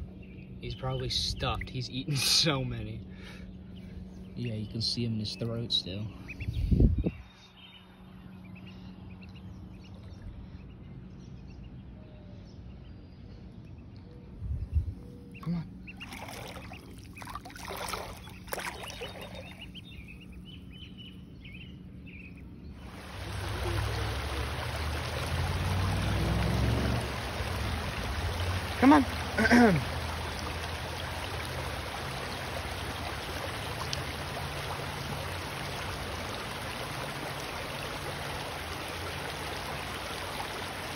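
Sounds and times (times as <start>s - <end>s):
stream running over stones: 22.8s - 40.9s.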